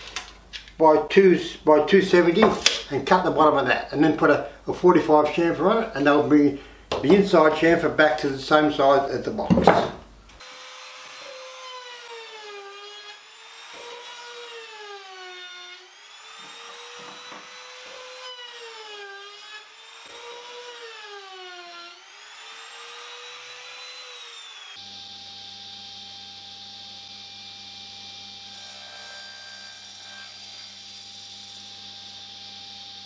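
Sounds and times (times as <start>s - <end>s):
trim router whining: 10.4s - 33.0s.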